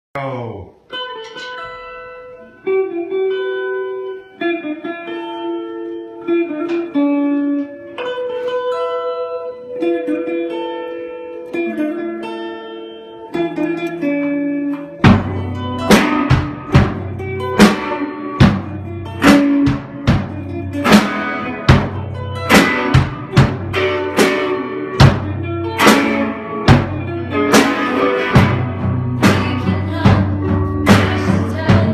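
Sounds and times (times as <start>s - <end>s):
electric guitar melody: 0.8s - 31.9s
drum and cymbal hits: 15.0s - 31.9s.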